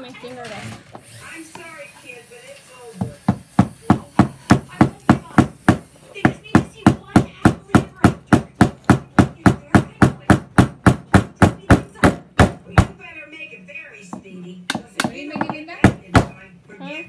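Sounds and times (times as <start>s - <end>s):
rapid strikes on hard surface: 3.0s - 13.0s, 14.7s - 16.4s.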